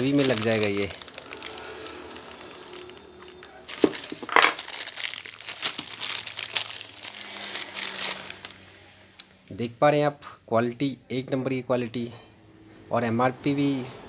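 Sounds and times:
plastic bag crinkling: 0:00.0 - 0:08.6
sharp plastic crackles: 0:00.0 - 0:08.6.

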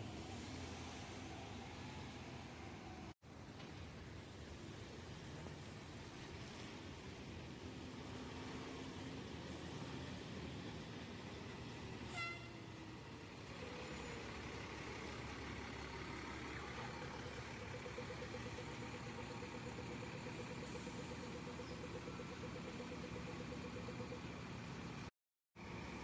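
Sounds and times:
fire engine driving past: 0:00.0 - 0:03.2, 0:04.2 - 0:26.0
traffic noise: 0:00.0 - 0:26.0
short horn toot: 0:12.1 - 0:12.7.

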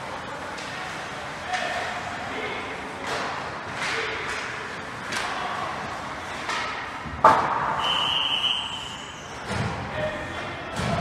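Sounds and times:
hockey sticks and puck clacking: 0:03.0 - 0:05.4, 0:06.4 - 0:08.1
puck hitting boards crack: 0:06.5 - 0:07.8
referee's whistle blast: 0:07.8 - 0:09.4.

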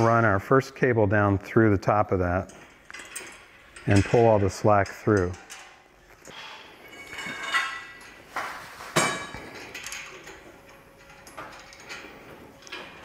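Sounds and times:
metal hardware clinking and rattling: 0:02.3 - 0:06.2, 0:06.9 - 0:08.2, 0:09.0 - 0:13.0.

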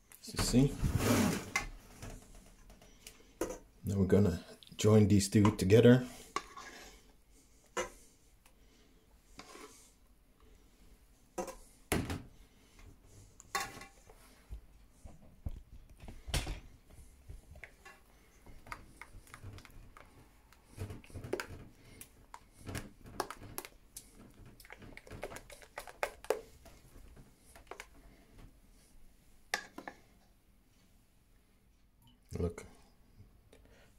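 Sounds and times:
whisk scraping metal bowl: 0:06.1 - 0:07.0, 0:09.4 - 0:09.8.

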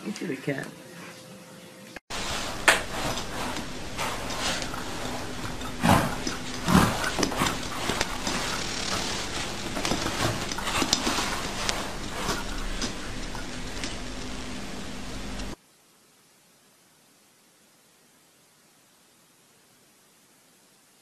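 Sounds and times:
pet bed dragged across floor: 0:02.1 - 0:15.6.

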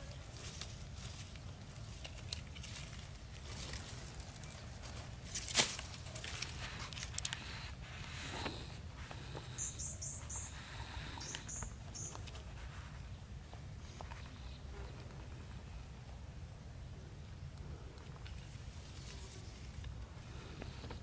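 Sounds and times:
rustling in dry grass: 0:00.0 - 0:15.9, 0:18.2 - 0:21.0
small bird chirping: 0:08.4 - 0:12.5.

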